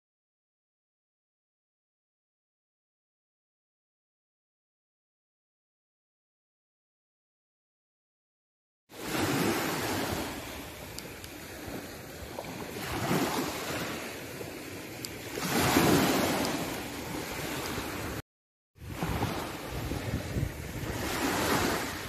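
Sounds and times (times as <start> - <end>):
waves washing over pebbles: 9.0 - 18.2, 18.8 - 22.0.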